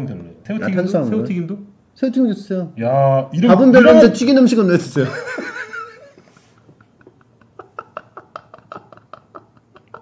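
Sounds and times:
men laughing quietly: 0:05.1 - 0:10.0.

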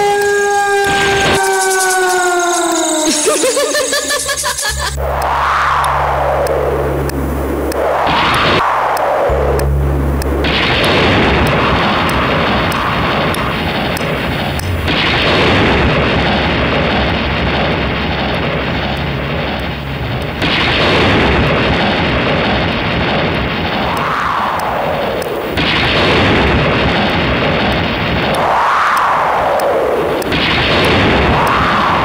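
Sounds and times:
rumbling storm sound effect: 0:00.9 - 0:32.0
howling wind-like tone: 0:26.4 - 0:32.0.

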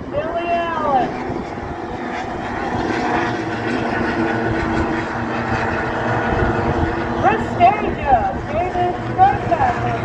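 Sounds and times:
outboard motors whining: 0:00.0 - 0:10.0.

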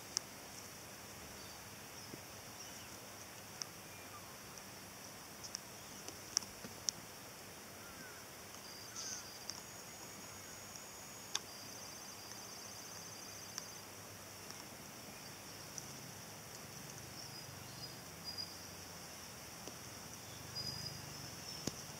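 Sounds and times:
insects trilling: 0:00.0 - 0:21.9
pulsed insect trill: 0:15.1 - 0:21.9.

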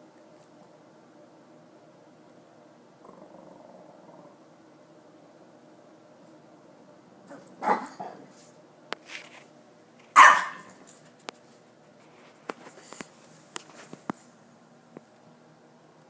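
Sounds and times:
small dog barking: 0:07.3 - 0:08.2, 0:10.2 - 0:10.8.

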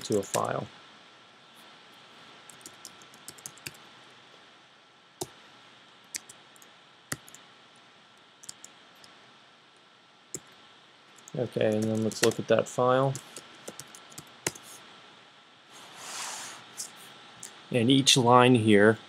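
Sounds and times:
faint room hiss: 0:00.0 - 0:19.0.

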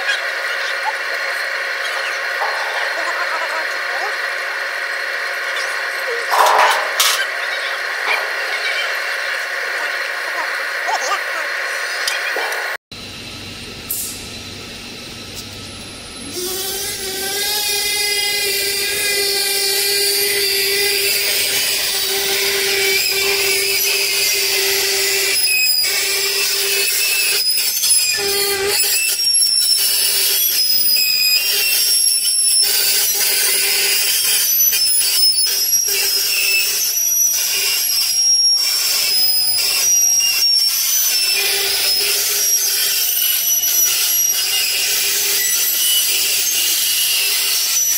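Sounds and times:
high-pitched squeals: 0:00.0 - 0:12.5, 0:16.2 - 0:47.9
machine motor hum: 0:00.0 - 0:25.3.

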